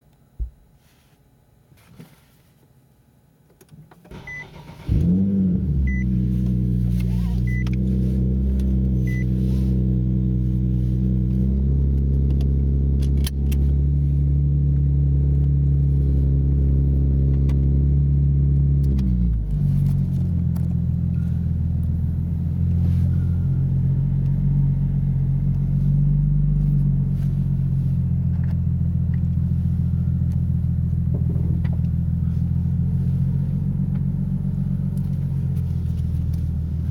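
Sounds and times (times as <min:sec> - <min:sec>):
car engine starting and idling: 0:03.6 - 0:36.9
short electronic beeps: 0:05.9 - 0:06.1, 0:07.5 - 0:07.7, 0:09.1 - 0:09.3.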